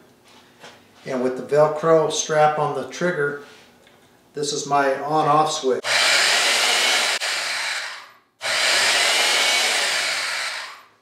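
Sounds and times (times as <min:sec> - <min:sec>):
band saw motor running: 0:05.8 - 0:10.9.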